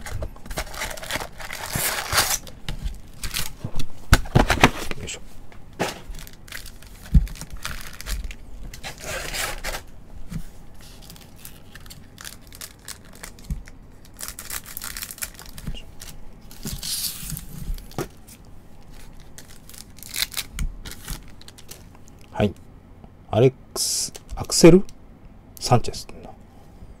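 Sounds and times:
foil wrappers crinkling: 0:00.0 - 0:03.6, 0:05.8 - 0:09.9, 0:10.8 - 0:22.3
scissors cutting foil: 0:00.6 - 0:02.5.

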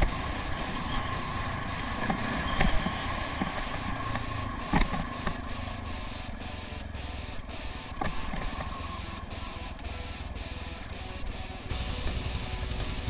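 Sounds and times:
dirt bike engine running: 0:00.0 - 0:13.0.

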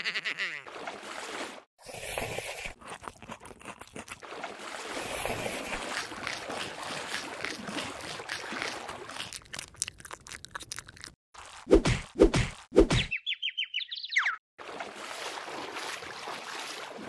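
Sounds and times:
water sloshing and trickling: 0:00.7 - 0:11.7, 0:14.6 - 0:17.0.

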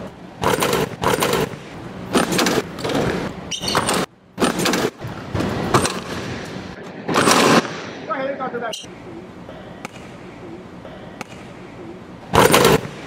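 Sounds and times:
basketball banging on rim and floor: 0:02.2 - 0:06.4.

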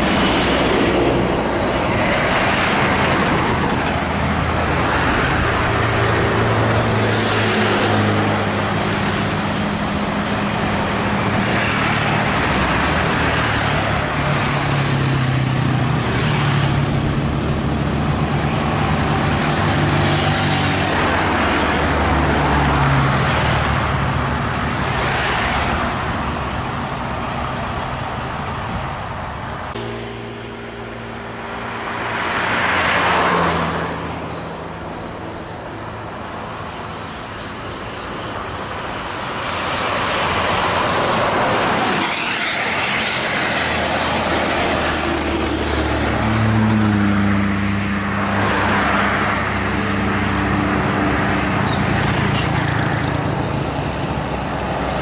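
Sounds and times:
diesel bus engines: 0:00.0 - 0:55.0
tyre and road noise: 0:00.0 - 0:55.0
vehicle passing: 0:38.7 - 0:55.0.

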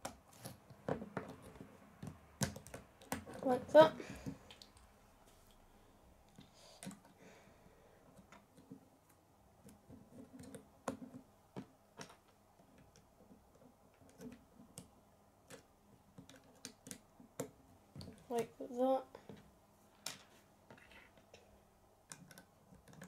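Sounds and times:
plastic pieces clicking: 0:22.1 - 0:23.0.

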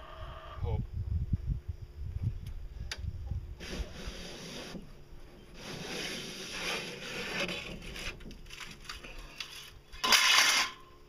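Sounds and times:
metal scraping and rattling in pipe: 0:05.6 - 0:10.9.

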